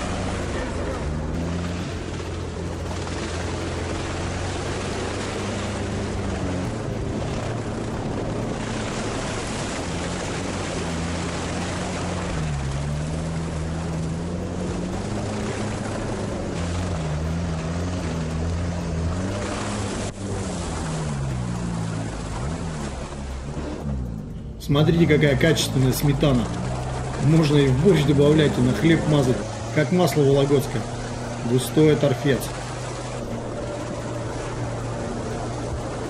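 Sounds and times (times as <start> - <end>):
all-terrain vehicle engine: 0.0 - 36.0
steady rushing noise: 0.0 - 36.0.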